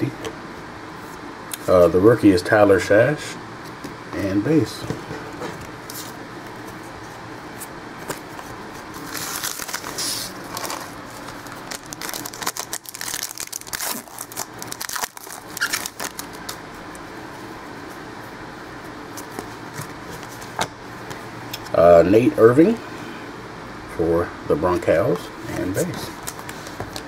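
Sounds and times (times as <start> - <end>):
cards rustling: 8.0 - 17.0, 25.6 - 27.0
foil wrapper tearing and crinkling: 9.0 - 16.6.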